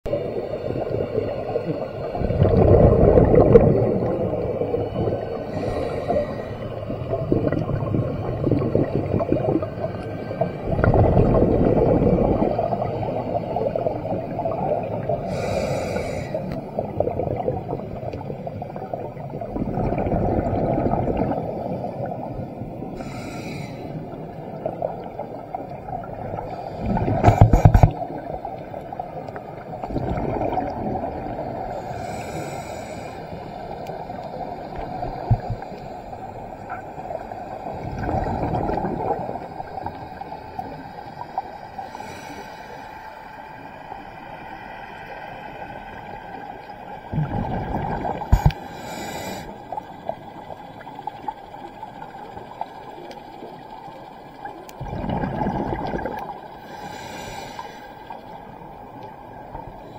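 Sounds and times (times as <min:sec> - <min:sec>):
exhaled bubbles rumbling: 0:00.1 - 0:23.2, 0:23.9 - 0:32.3, 0:33.4 - 0:42.0, 0:45.7 - 0:48.8, 0:49.6 - 0:56.8
regulator inhalation hiss: 0:05.5 - 0:06.7, 0:15.2 - 0:16.6, 0:23.0 - 0:24.1, 0:31.7 - 0:36.6, 0:41.8 - 0:43.2, 0:48.3 - 0:49.9, 0:56.6 - 0:58.2.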